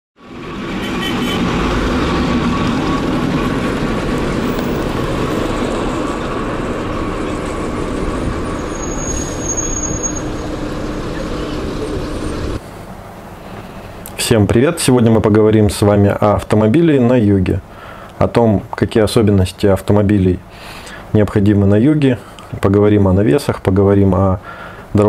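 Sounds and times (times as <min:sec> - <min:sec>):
passing traffic: 0:00.2 - 0:19.2, 0:19.8 - 0:22.7, 0:24.4 - 0:25.0
thin high whine: 0:00.8 - 0:14.0.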